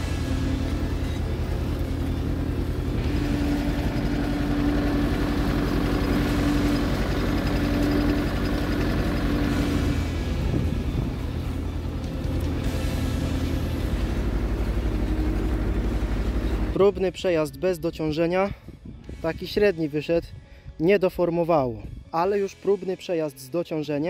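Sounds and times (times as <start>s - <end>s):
steady hum: 0.0s - 16.8s
tractor engine under load: 0.0s - 17.2s.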